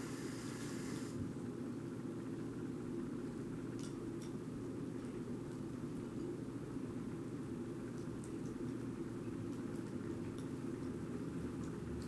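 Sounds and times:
low room hum: 0.0 - 12.0
cat chewing food: 7.4 - 12.0.

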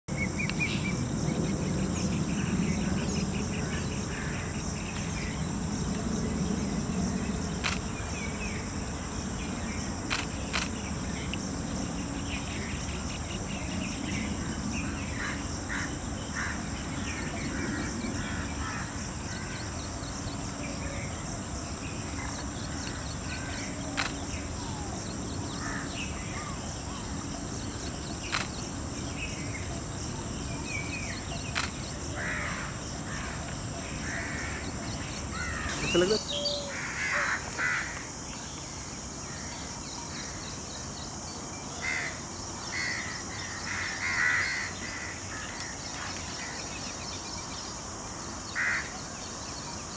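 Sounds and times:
insects buzzing: 0.1 - 49.9
sharp clicks: 7.6 - 7.9, 10.1 - 10.8, 24.0 - 24.2, 28.3 - 28.6, 31.5 - 31.8
small birds chirping: 19.5 - 36.8.

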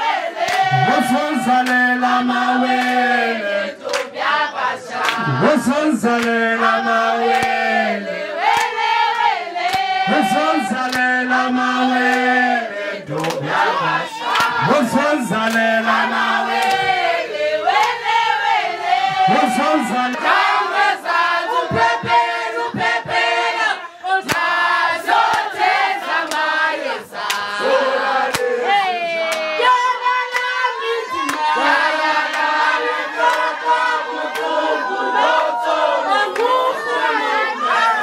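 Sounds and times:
women singing together: 0.0 - 38.0
hands clapping: 0.4 - 2.0, 2.7 - 3.2, 3.8 - 4.2, 4.9 - 5.4, 6.1 - 6.4, 7.2 - 7.7, 8.4 - 11.2, 12.0 - 12.3, 13.1 - 17.0, 17.7 - 18.1, 24.2 - 24.6, 25.2 - 25.5, 26.1 - 26.6, 27.2 - 27.6, 28.2 - 29.6, 30.2 - 31.5, 32.1 - 33.6, 34.2 - 34.6, 36.2 - 36.6.

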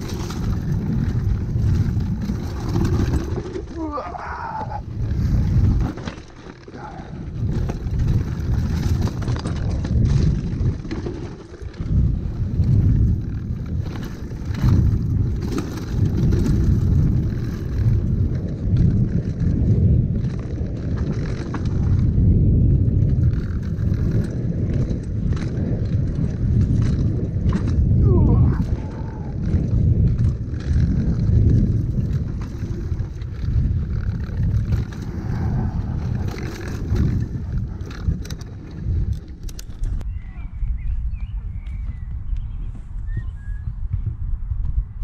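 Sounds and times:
bike clattering over bumps: 0.0 - 4.0, 4.7 - 40.0
rumble of wind and tyres: 0.0 - 45.0.

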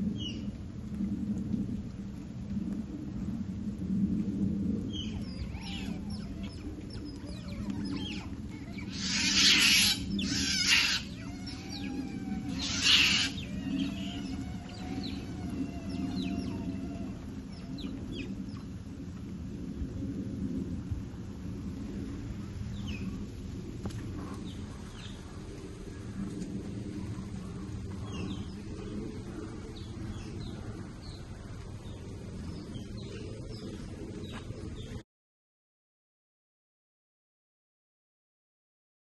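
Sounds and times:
low background hum: 0.0 - 35.0
animal chirps and squeaks: 5.2 - 18.3
harsh animal screeches: 5.5 - 17.2.

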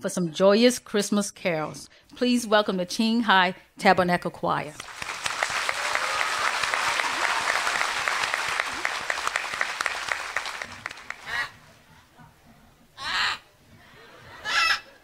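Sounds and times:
audience applauding: 4.8 - 11.7.

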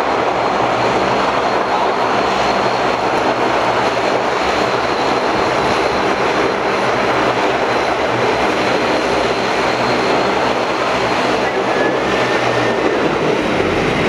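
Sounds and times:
jet engines running: 0.0 - 14.0.

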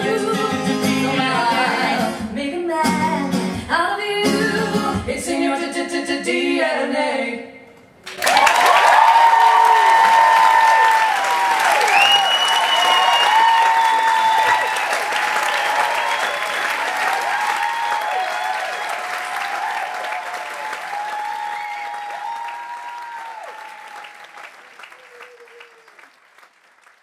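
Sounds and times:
audience applauding: 8.0 - 27.0.

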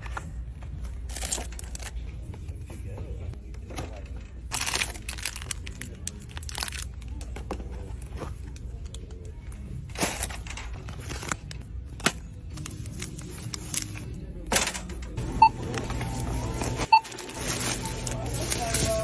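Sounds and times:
rustling of packaging: 4.5 - 7.2, 15.8 - 19.0
barcode scanner beep: 15.4 - 17.9.

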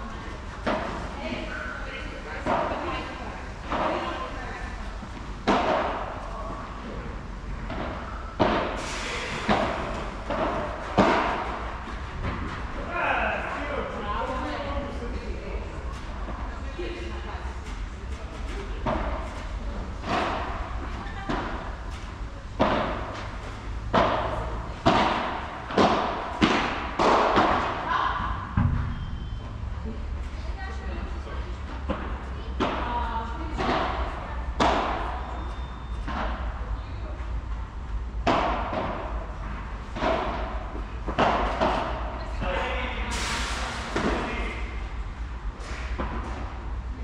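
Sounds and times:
padel ball hits echoing: 28.5 - 29.4.

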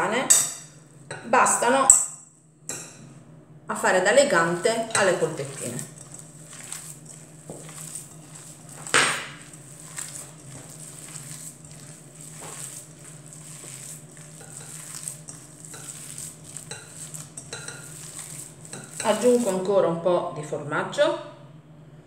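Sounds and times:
low steady hum: 0.0 - 22.0
hands kneading minced meat: 4.3 - 19.8.

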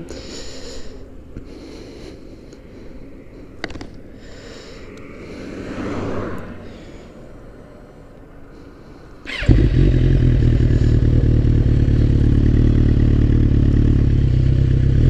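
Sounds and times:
passing car: 3.0 - 15.0
motorcycle engine idling: 9.2 - 15.0.

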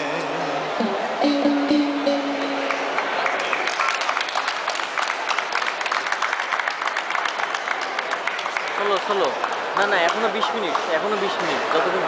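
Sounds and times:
audience applause: 2.5 - 12.0.

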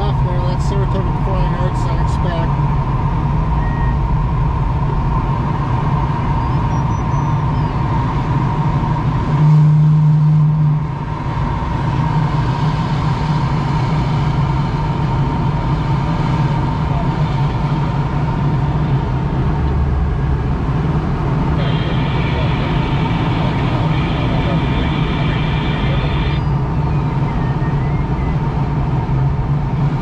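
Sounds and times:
low hum: 0.0 - 30.0
rushing airflow in cockpit: 9.0 - 30.0.

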